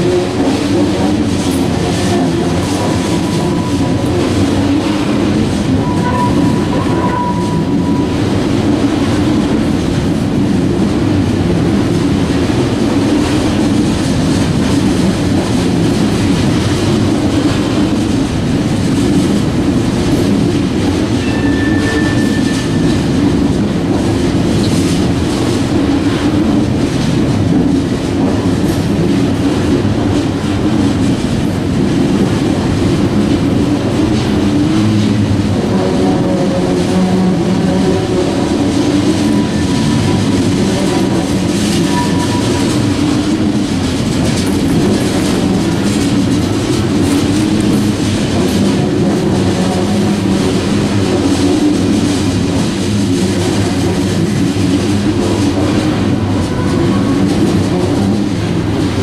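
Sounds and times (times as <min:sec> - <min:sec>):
clickety-clack over rail joints: 0:00.0 - 0:59.0
train wheels rumbling on rails: 0:00.0 - 0:59.0
high wheel squeals: 0:21.2 - 0:22.9.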